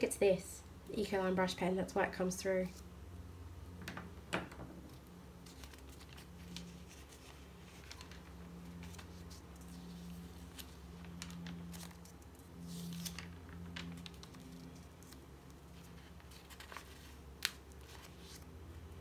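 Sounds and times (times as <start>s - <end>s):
faint low hum: 0.0s - 19.0s
paper pages turning: 4.9s - 18.6s.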